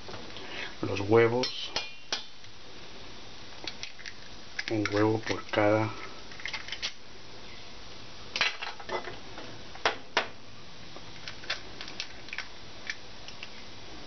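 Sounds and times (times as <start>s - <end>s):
eggs cracking: 3.6s - 5.6s, 6.3s - 7.0s, 11.2s - 13.6s.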